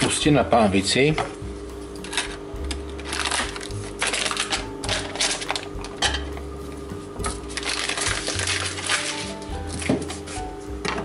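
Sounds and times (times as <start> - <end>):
paper wrapper crinkling: 2.0 - 6.0, 7.2 - 10.5.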